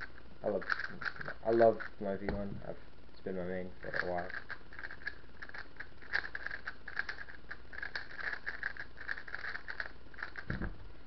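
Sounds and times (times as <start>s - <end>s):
plastic puzzle cube clicking: 4.3s - 10.5s.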